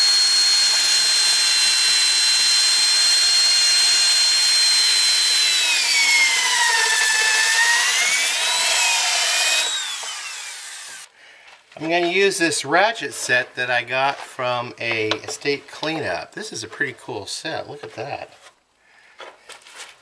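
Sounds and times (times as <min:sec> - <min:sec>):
electric drill whining: 0:00.0 - 0:11.1.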